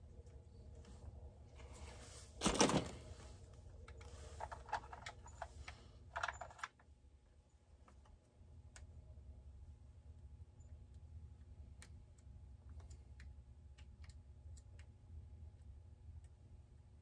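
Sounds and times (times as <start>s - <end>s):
low steady hum: 0.0s - 17.0s
plastic and metal parts clicking: 3.8s - 6.9s
scrape of parts: 4.0s - 6.7s.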